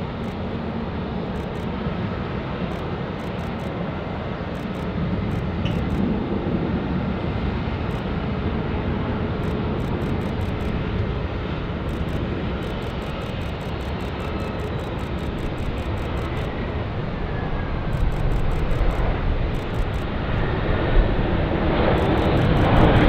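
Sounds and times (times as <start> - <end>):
jet engines landing: 0.0 - 23.0.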